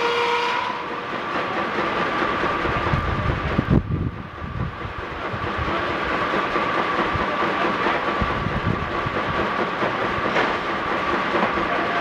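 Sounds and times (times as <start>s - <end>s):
sawmill working under load: 0.0s - 12.0s
steam traction engines running: 0.0s - 12.0s.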